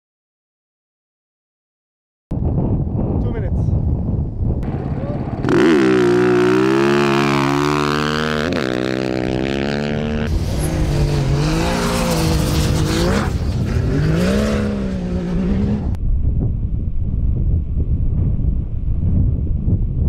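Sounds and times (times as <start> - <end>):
vehicle engine revving: 4.6 - 16.0.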